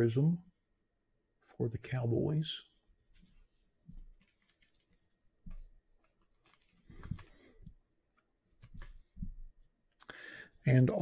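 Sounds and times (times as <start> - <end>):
trading cards clicking and rustling: 3.9 - 7.6, 8.6 - 9.2.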